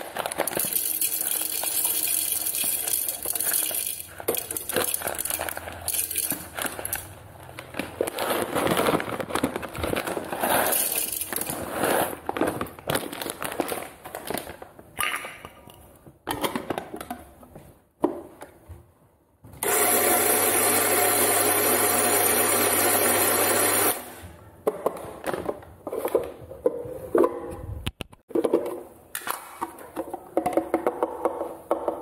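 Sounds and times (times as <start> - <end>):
kitchen clatter and rustling: 0.0 - 18.7
kitchen appliance motor hum: 19.6 - 24.0.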